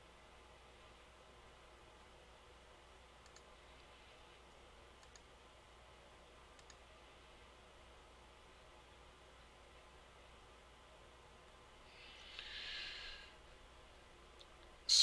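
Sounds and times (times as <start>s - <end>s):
low room hum: 0.0s - 15.0s
faint double clicks: 6.6s - 6.8s.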